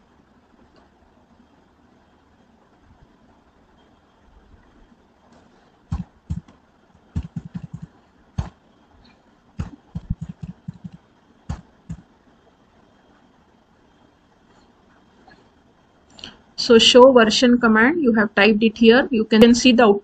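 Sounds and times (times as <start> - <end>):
keyboard keys tapping: 5.9 - 6.6, 7.2 - 8.6, 9.6 - 12.1.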